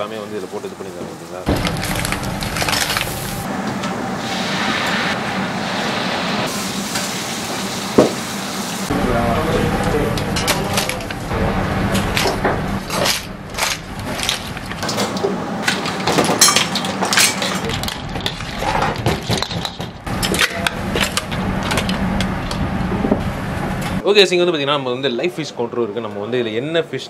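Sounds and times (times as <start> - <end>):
low kitchen hum: 0.0 - 24.0
metal utensils clattering on pots: 14.2 - 21.9.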